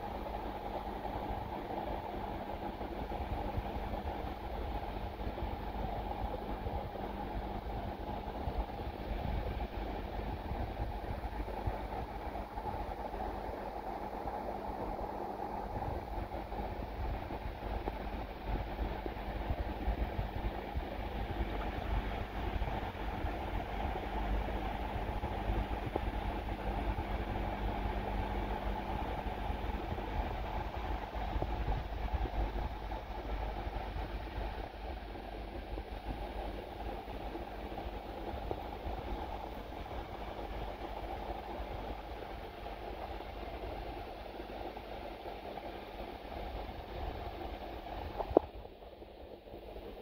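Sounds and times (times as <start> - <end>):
constant low hum: 0.0 - 50.0
underwater rumble and hiss: 25.8 - 50.0.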